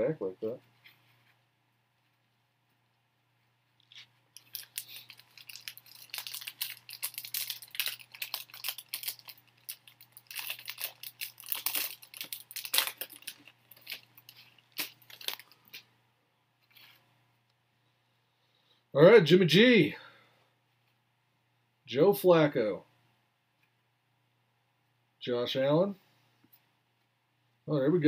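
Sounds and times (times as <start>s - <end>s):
card pack wrapper tearing: 3.8s - 15.8s.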